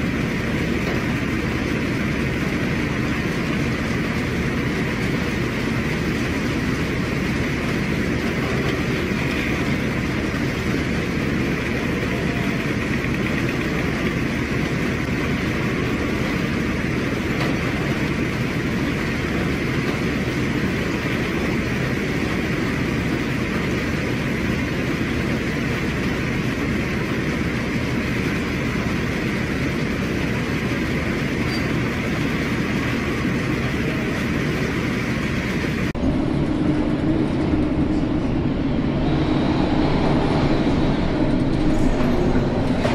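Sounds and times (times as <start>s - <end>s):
sea noise: 0.0s - 42.9s
low steady hum: 32.8s - 42.9s
wind: 35.9s - 42.9s.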